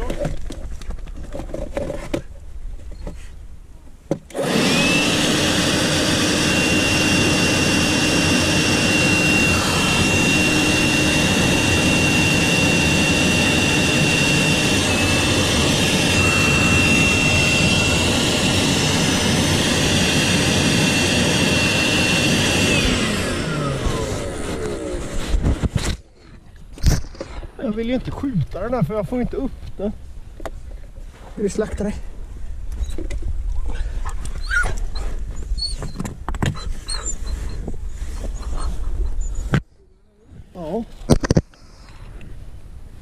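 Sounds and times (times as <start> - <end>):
leaf blower whining: 4.3 - 26.1.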